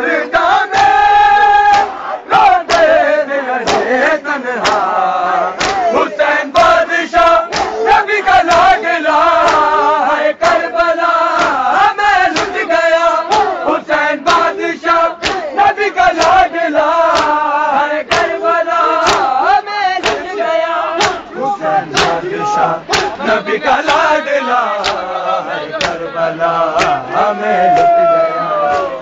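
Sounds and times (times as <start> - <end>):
crowd of men chanting: 0.0 - 29.0
hands slapping bare chests: 1.6 - 2.0, 3.6 - 3.9, 4.6 - 4.9, 5.6 - 6.0, 7.5 - 7.8, 8.4 - 8.8, 9.4 - 9.8, 10.4 - 10.7, 11.3 - 12.6, 13.3 - 13.6, 14.2 - 14.6, 15.2 - 17.4, 18.1 - 19.4, 20.0 - 20.4, 21.0 - 21.3, 22.0 - 22.2, 22.9 - 23.2, 24.8 - 25.1, 25.8 - 26.0, 26.8 - 27.0, 27.7 - 28.0.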